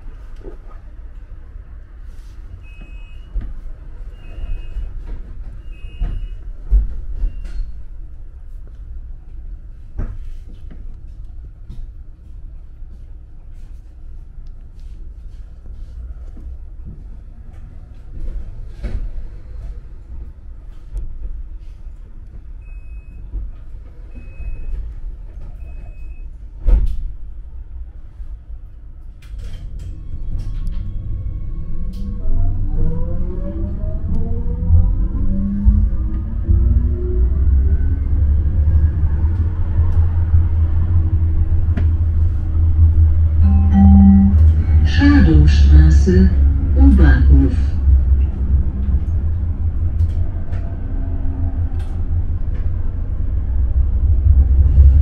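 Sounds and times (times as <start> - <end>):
tram running rumble: 0.0 - 55.0
short high beep: 43.4 - 44.8.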